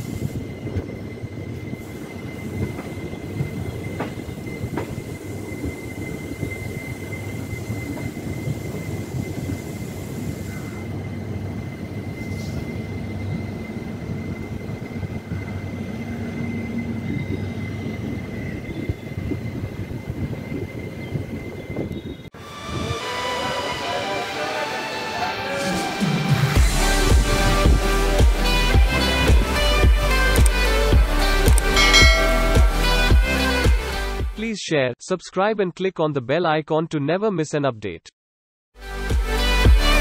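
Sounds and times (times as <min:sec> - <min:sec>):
train wheels rumbling on rails: 0:00.0 - 0:21.8
high whine: 0:31.8 - 0:33.6.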